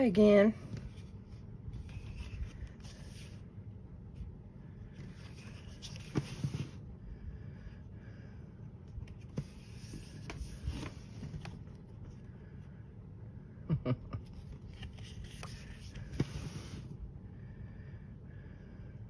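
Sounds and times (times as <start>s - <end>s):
paper pages turning: 0.7s - 3.4s, 4.9s - 6.8s, 9.0s - 11.8s, 14.3s - 16.9s.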